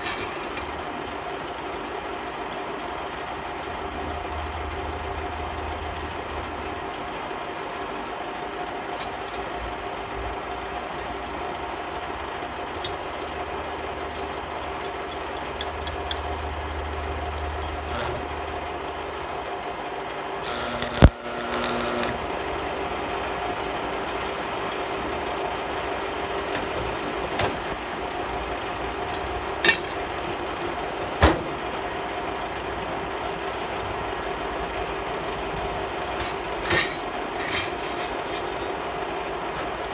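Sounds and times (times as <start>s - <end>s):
welder humming: 15.0s - 18.9s, 20.2s - 27.2s
welding arc crackling: 17.6s - 18.4s, 20.4s - 24.4s.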